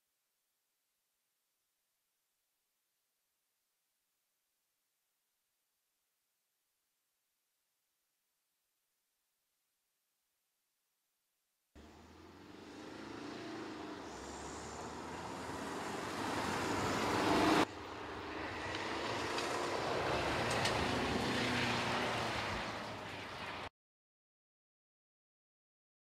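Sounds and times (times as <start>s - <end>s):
car driving on gravel: 11.8s - 23.7s.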